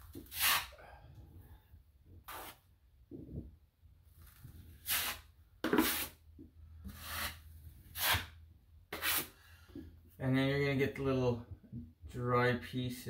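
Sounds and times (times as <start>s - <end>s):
drywall knife scraping compound: 0.1s - 0.8s, 2.2s - 2.7s, 4.7s - 6.2s, 6.8s - 9.6s.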